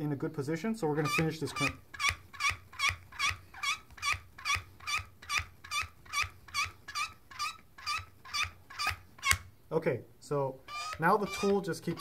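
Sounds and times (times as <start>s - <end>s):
crimping tool squeaking: 0.9s - 9.4s, 10.6s - 12.0s.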